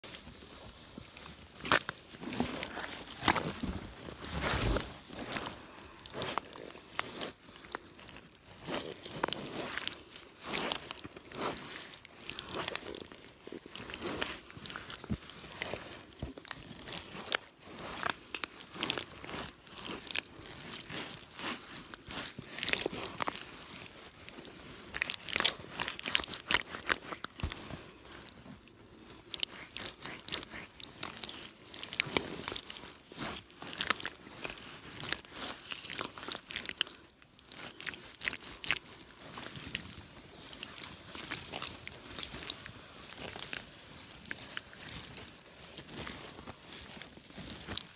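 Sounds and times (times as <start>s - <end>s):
rubber boots squelching in mud: 0.1s - 47.9s.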